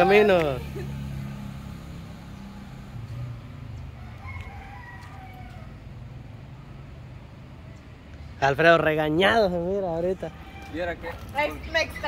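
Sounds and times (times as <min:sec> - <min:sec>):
faint rooster crowing: 0:03.9 - 0:05.9, 0:10.0 - 0:11.2.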